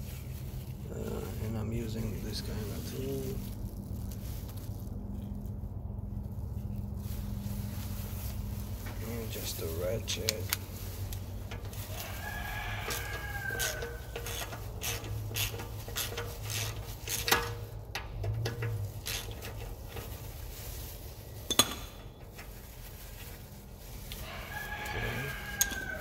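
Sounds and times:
hand ratchet clicking: 0:12.8 - 0:19.6.

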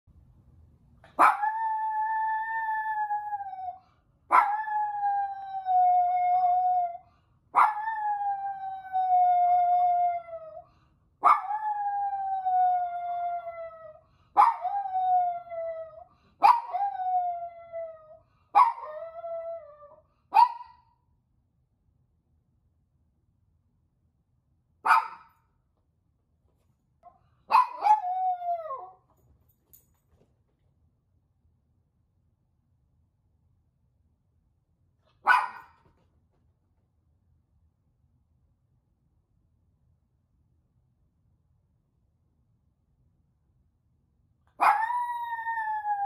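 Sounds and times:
dog howling: 0:01.2 - 0:07.0, 0:44.6 - 0:46.0.

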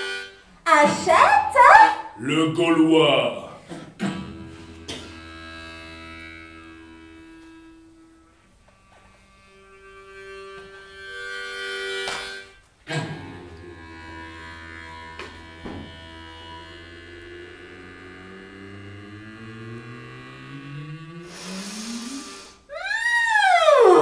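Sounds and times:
jaw harp buzzing melody: 0:00.0 - 0:08.4, 0:09.5 - 0:22.9
steady low drone: 0:03.2 - 0:08.3, 0:12.9 - 0:22.5.

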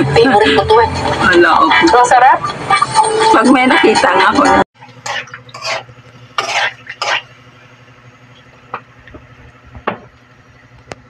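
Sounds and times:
spatula scraping a wok: 0:05.0 - 0:07.4.

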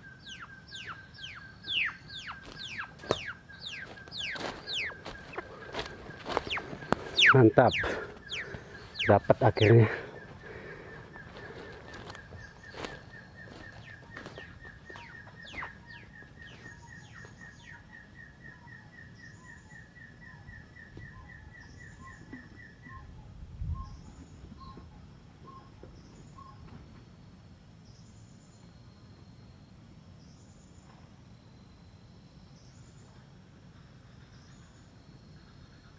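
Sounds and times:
high bird chirp: 0:00.0 - 0:26.6
partridge whistled calls: 0:00.0 - 0:26.7.

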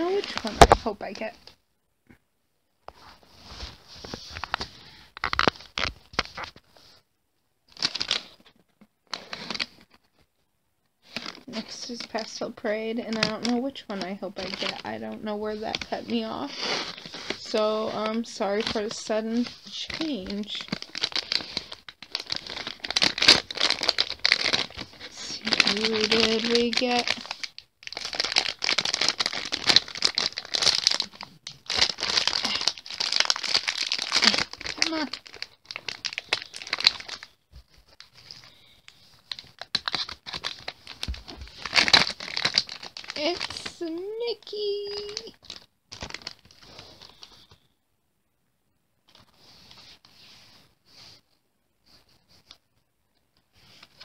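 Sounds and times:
plastic packet crinkling: 0:04.4 - 0:06.6, 0:07.7 - 0:10.0, 0:11.0 - 0:47.6.

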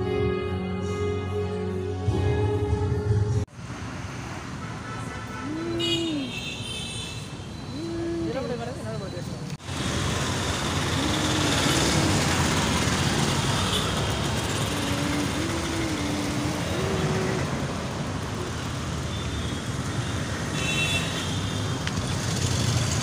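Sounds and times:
motorbikes and scooters passing: 0:09.6 - 0:23.0.

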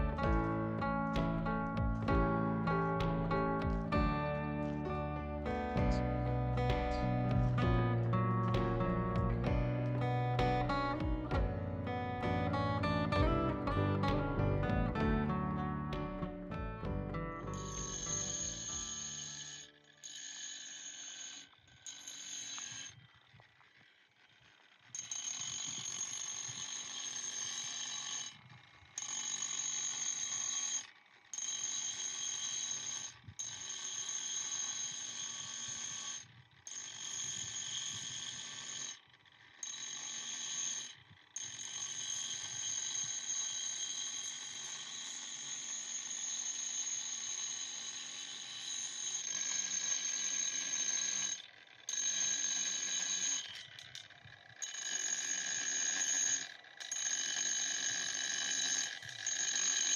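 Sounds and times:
angle grinder sanding slate: 0:17.5 - 0:23.0, 0:29.0 - 0:39.0, 0:39.6 - 0:54.0, 0:54.6 - 0:59.9.

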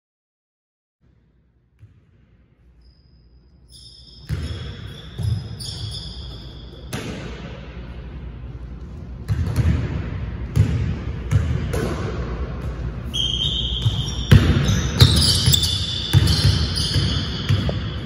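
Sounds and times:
sneakers squeaking: 0:02.6 - 0:07.5, 0:08.8 - 0:18.0
basketball bouncing on wooden floor: 0:09.3 - 0:12.0, 0:13.8 - 0:18.0.

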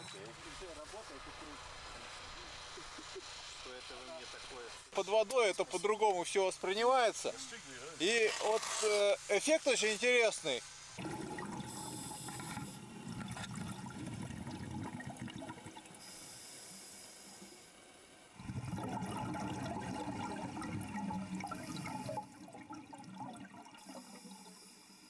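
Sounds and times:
exhaled bubbles gushing: 0:11.0 - 0:16.0, 0:18.4 - 0:24.7
regulator inhale hiss: 0:11.6 - 0:12.8, 0:16.0 - 0:17.7.

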